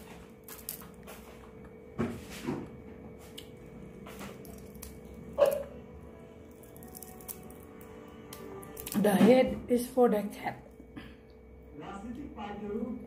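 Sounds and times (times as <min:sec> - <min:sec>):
faint steady hum: 0:00.0 - 0:13.0
person chewing and eating: 0:02.7 - 0:05.8, 0:06.4 - 0:09.0.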